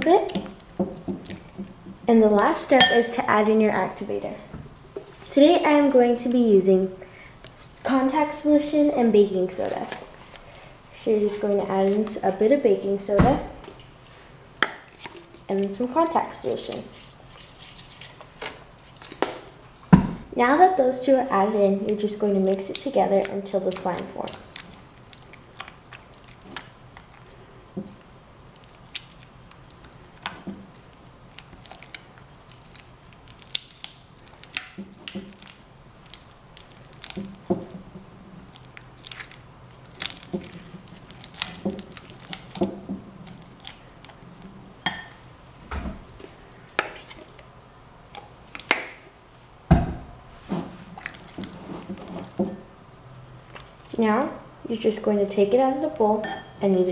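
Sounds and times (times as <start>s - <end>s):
slime squelching and popping: 21.8s - 44.6s, 50.9s - 52.4s
heavy thump: 49.7s - 50.8s.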